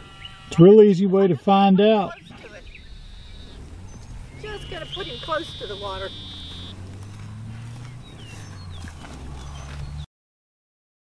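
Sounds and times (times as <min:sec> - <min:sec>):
falling bird chirps: 0:02.2 - 0:10.0.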